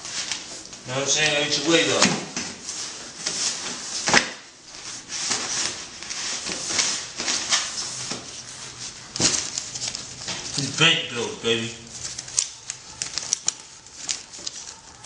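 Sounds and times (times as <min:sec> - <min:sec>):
paper banknotes rustling: 0:02.7 - 0:15.0.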